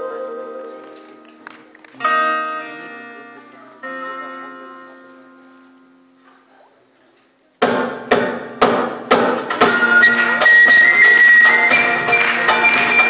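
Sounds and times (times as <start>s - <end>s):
acoustic guitar chords: 1.9s - 6.2s
band playing rhythmic strikes: 7.6s - 13.0s.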